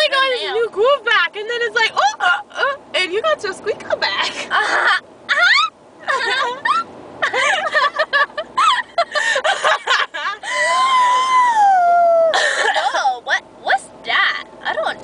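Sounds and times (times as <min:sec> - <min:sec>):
woman wailing: 0:04.5 - 0:06.9, 0:10.4 - 0:12.7.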